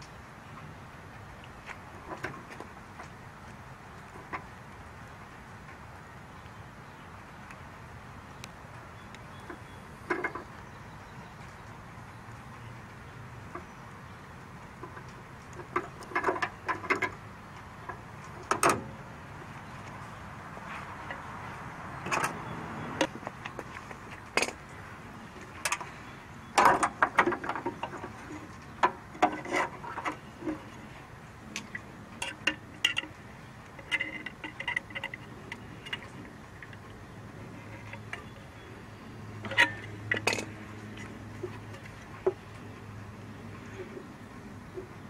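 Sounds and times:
tools and metal parts clinking: 39.4s - 40.6s.

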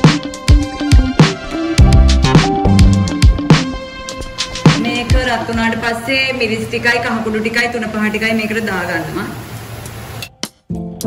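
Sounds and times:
background music with drum beat: 0.0s - 5.7s, 10.2s - 11.0s.

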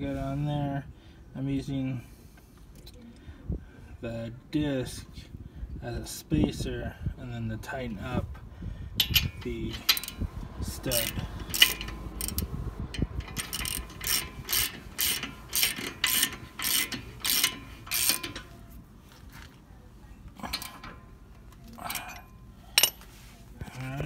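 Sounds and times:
socket ratchet clicking: 9.0s - 10.2s, 10.9s - 18.5s.

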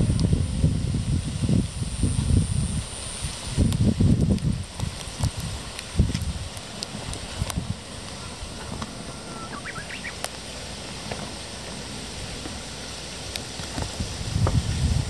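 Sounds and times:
rustling vegetation: 0.0s - 15.0s
wind: 0.0s - 15.0s
faint clicks: 3.7s - 10.5s
high bird chirp: 9.1s - 10.2s.

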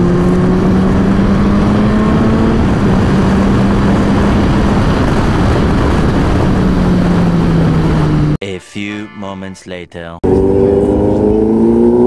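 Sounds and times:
motorcycle engine at speed: 0.0s - 8.4s, 10.2s - 12.0s
wind rush on microphone: 0.0s - 8.4s.

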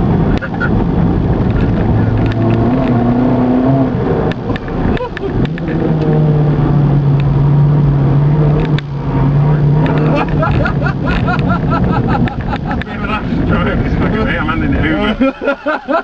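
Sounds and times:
car engine at steady revs: 0.0s - 15.8s.

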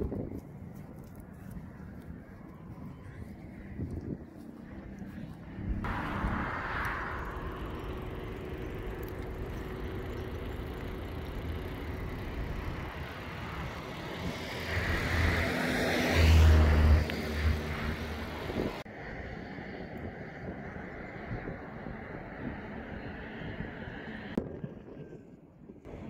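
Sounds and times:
road and outdoor noise: 0.0s - 25.1s
vehicle passing by: 4.5s - 24.4s.

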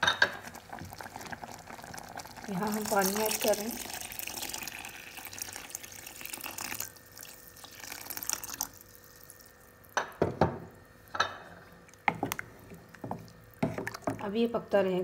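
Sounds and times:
wooden spoon stirring pot: 0.2s - 3.9s, 11.4s - 14.6s
water pouring into saucepan: 0.4s - 9.6s.

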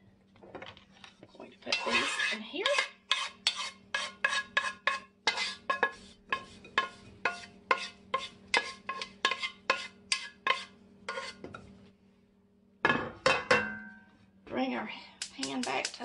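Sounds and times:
wooden spatula scraping a pan: 1.2s - 11.9s.

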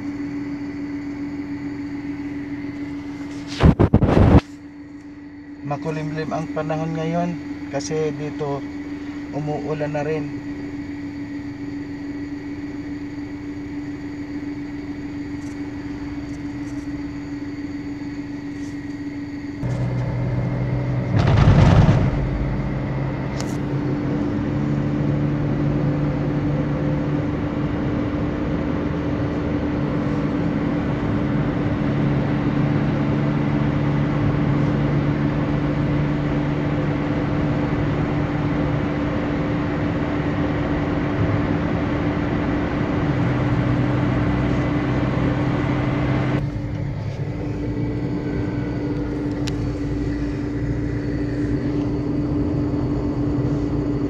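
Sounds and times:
car engine and road noise: 0.0s - 54.0s
brief loud noise: 21.0s - 22.6s.

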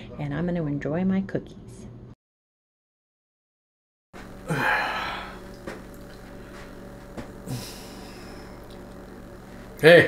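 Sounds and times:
low electrical hum: 4.2s - 10.0s
man exhaling: 4.4s - 5.4s, 7.4s - 8.6s.

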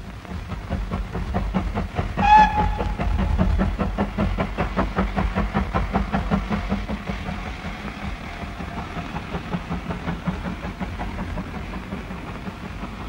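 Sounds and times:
steam locomotive chuffing: 0.0s - 13.0s
steam whistle blast: 2.2s - 3.2s.

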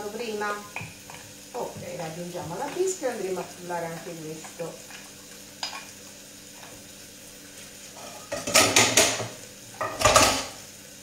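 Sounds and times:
faint frying sizzle: 0.0s - 11.0s
metal saucepan and spoon clattering: 8.0s - 10.6s.

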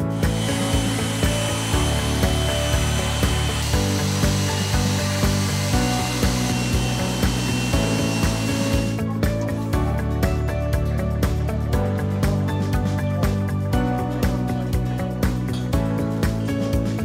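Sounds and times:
electric sander on concrete: 0.0s - 9.1s
background music with beat: 0.0s - 17.0s.

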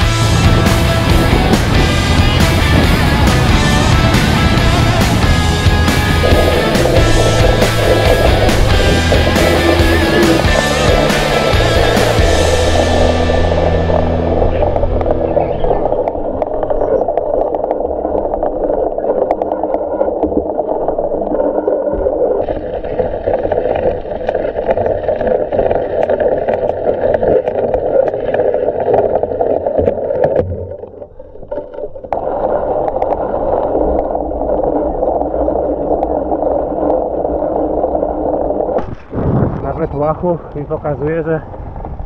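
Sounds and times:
bike tyres rolling through mud: 0.0s - 21.7s.

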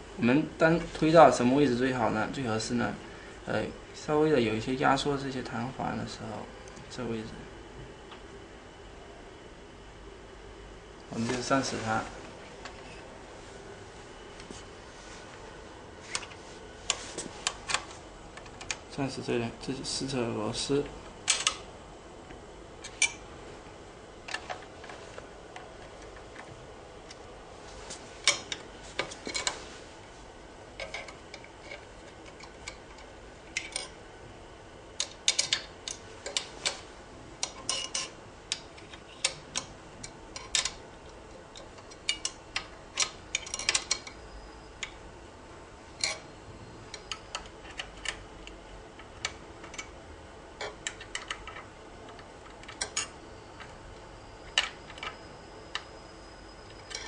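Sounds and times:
small metallic clicks and clinks: 43.0s - 44.2s.

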